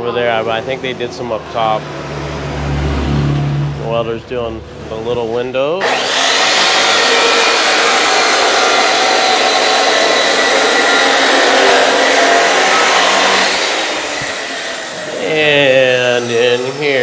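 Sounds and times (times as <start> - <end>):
cut-off saw grinding steel: 5.8 - 17.0.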